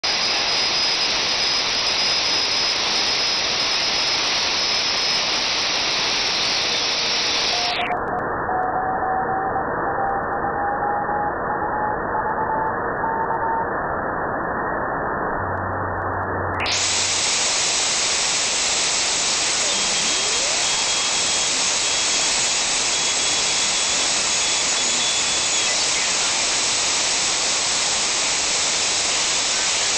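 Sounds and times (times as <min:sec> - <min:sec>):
radio receiver hiss: 0:00.0 - 0:08.0, 0:16.6 - 0:29.9
faint broken rising whistle: 0:06.2 - 0:15.4, 0:18.4 - 0:29.9.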